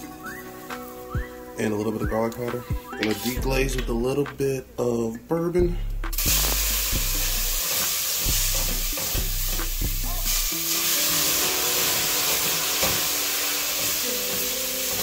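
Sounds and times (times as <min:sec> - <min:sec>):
liquid sizzling in hot oil: 0:06.1 - 0:15.0.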